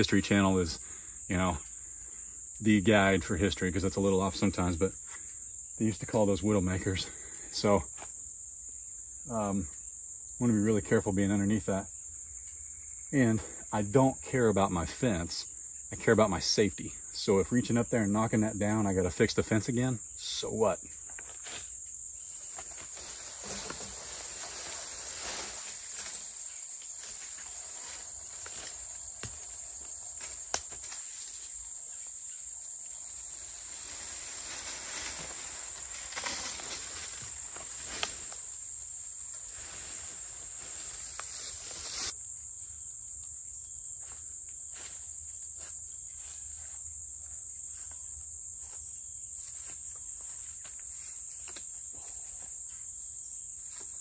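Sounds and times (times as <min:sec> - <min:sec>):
insects chirring: 0:00.0 - 0:54.0
footsteps in brush: 0:21.0 - 0:32.2, 0:33.2 - 0:38.5, 0:39.3 - 0:42.1, 0:49.4 - 0:51.8
rustling in brush: 0:21.2 - 0:31.7, 0:33.0 - 0:38.5, 0:39.3 - 0:42.2.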